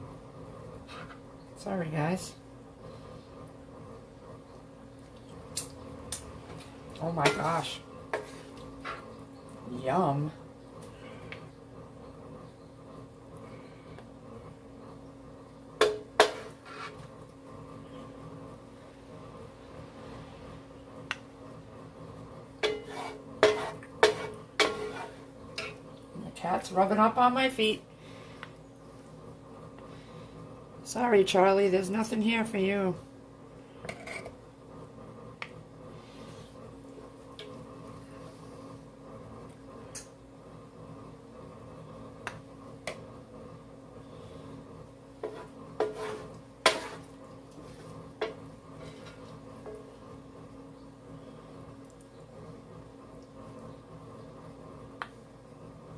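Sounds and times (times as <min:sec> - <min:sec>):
wooden spatula scraping skillet: 0:00.8 - 0:01.2, 0:07.2 - 0:09.2, 0:15.8 - 0:17.2, 0:22.6 - 0:25.8, 0:33.8 - 0:34.4, 0:45.2 - 0:49.9.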